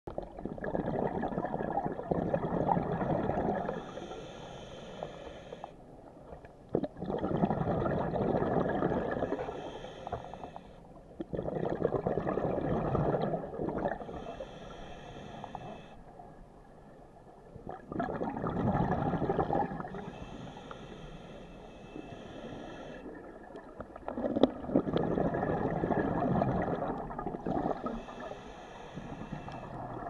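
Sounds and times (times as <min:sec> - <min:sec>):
exhaled bubbles gurgling underwater: 0:00.1 - 0:16.3, 0:17.3 - 0:30.0
diver inhaling through regulator: 0:03.0 - 0:05.8, 0:07.5 - 0:10.9, 0:13.9 - 0:16.1, 0:18.9 - 0:23.3, 0:24.8 - 0:30.0.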